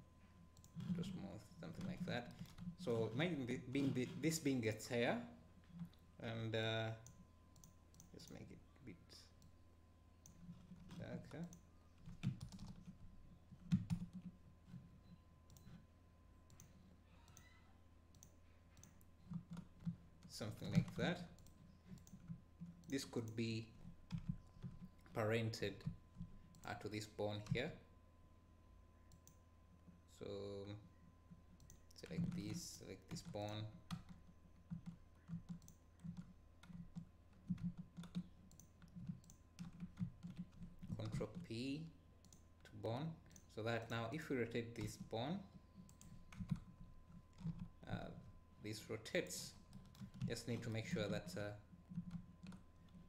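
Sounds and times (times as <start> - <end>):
computer mouse clicks: 7.0 - 8.4, 13.6 - 15.8, 16.5 - 20.0, 20.6 - 23.4, 29.1 - 29.4, 31.6 - 41.4, 45.8 - 46.7
computer keyboard clicks: 10.2 - 13.0, 13.6 - 14.3, 31.6 - 41.4, 45.9 - 47.7.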